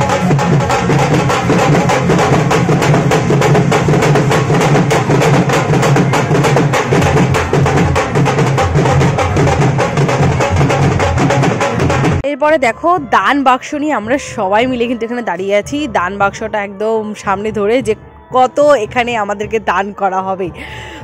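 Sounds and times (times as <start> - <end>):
band music: 0.0 - 12.2
dhol drums beating fast: 0.0 - 12.2.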